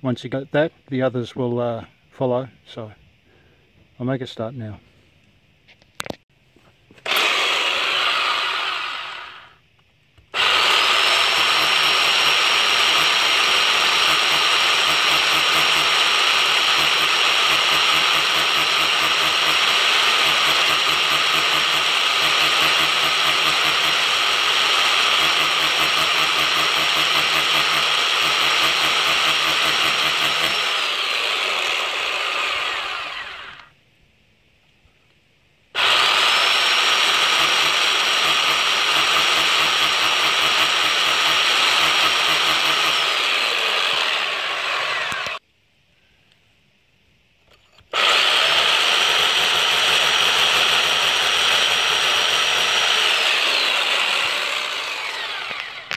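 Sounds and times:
hammer drill boring into brick: 0:07.0 - 0:09.6, 0:10.3 - 0:33.7, 0:35.8 - 0:45.4, 0:47.8 - 0:55.9.

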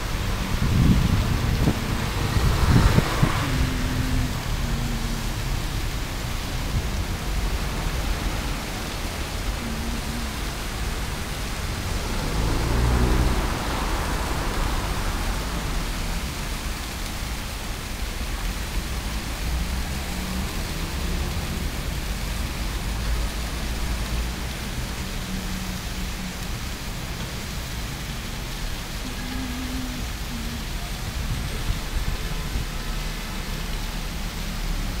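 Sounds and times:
low rumble: 0:00.0 - 0:16.5
fountain jets splashing: 0:00.0 - 0:35.0.

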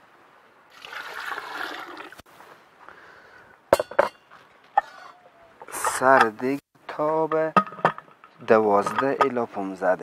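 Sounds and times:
water pouring and splashing: 0:00.7 - 0:02.3
metal clangs: 0:03.7 - 0:06.4, 0:07.3 - 0:09.4.

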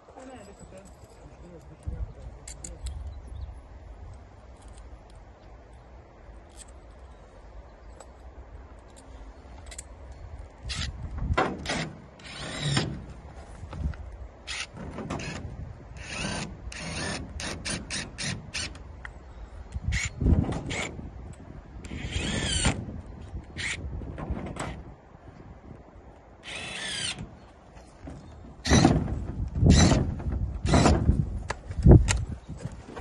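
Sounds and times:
cordless drill running: 0:26.4 - 0:27.2.

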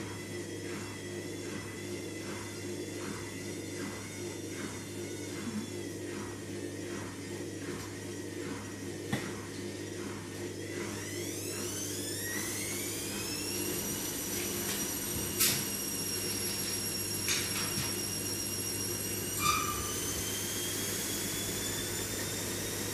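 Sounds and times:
electric motor whining: 0:11.0 - 0:22.9.

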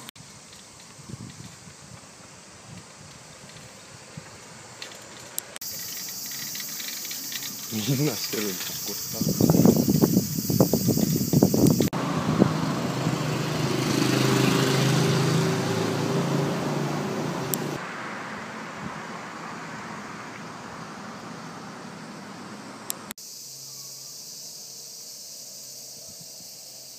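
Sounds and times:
vehicle passing: 0:05.1 - 0:10.1, 0:11.9 - 0:23.1.

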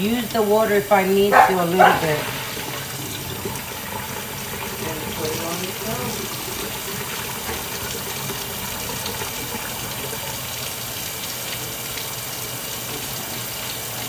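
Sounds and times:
faucet water running into sink: 0:00.0 - 0:14.0.

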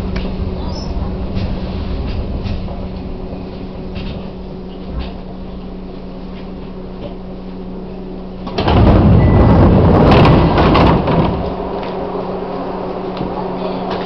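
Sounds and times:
train equipment humming: 0:00.0 - 0:14.0
sliding doors clattering: 0:08.5 - 0:12.6.

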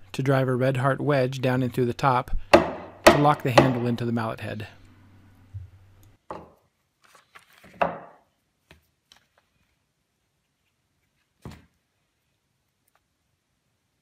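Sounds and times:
mallet thunk on wooden bench: 0:02.6 - 0:04.0.

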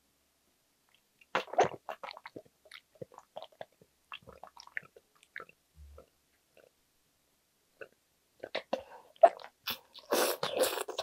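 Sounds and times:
person slurping broth: 0:08.6 - 0:11.0.

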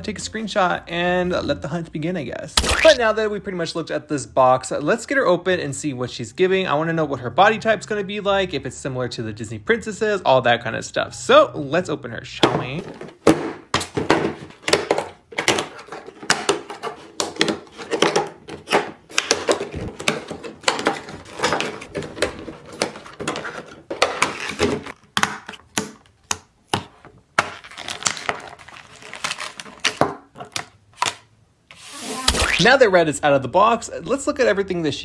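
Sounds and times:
packaging crackling and rustling: 0:27.4 - 0:30.7.

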